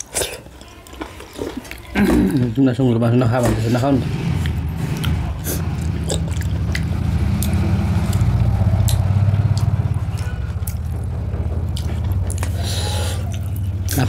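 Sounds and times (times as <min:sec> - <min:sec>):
eating from metal plates: 0:00.0 - 0:14.0
low engine-like rumble: 0:03.5 - 0:14.0.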